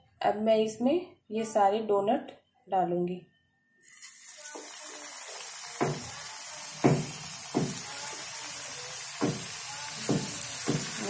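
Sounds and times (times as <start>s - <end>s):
oil sizzling in a frying pan: 3.8s - 11.0s.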